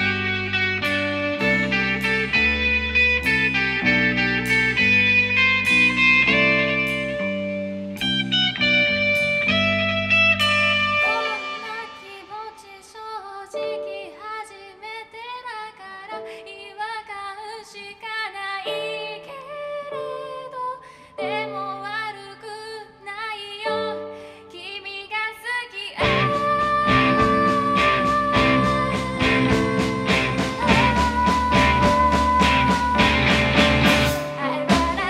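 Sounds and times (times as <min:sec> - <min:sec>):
live rock band: 0:00.0 - 0:12.2, 0:26.0 - 0:35.0
loud electric guitar: 0:00.0 - 0:12.4, 0:26.0 - 0:35.0
young woman singing: 0:11.0 - 0:35.0.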